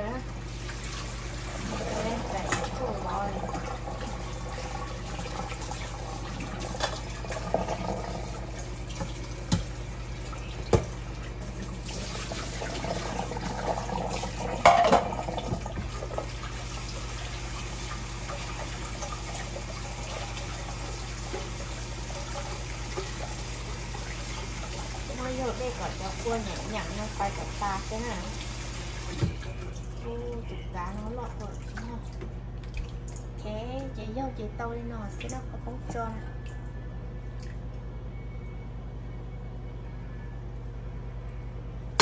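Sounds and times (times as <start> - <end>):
faucet running water: 0.0 - 36.6
cookware clattering: 14.6 - 15.2
cookware knocking against sink: 14.6 - 15.2.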